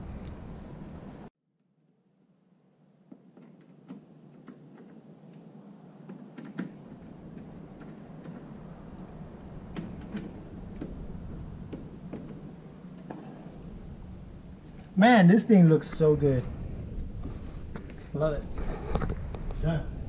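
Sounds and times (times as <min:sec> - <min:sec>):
low background hum: 0:02.0 - 0:20.0
screwdriver clicks and taps: 0:03.1 - 0:05.4.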